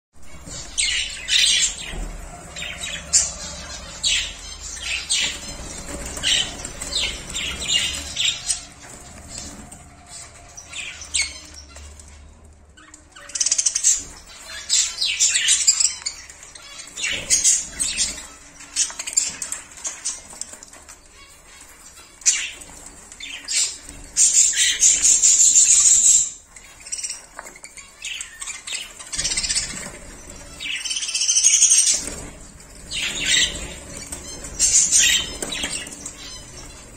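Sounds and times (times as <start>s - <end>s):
budgerigars chirping and squawking: 0.2s - 36.9s.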